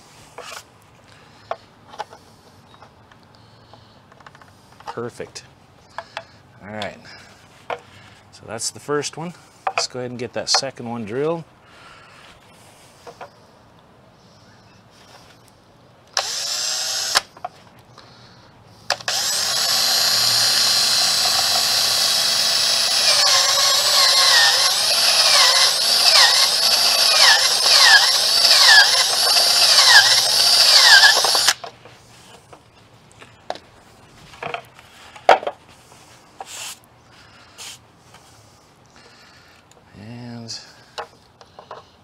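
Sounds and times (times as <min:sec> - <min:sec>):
power drill boring through plastic: 0:16.2 - 0:17.3, 0:18.9 - 0:31.6.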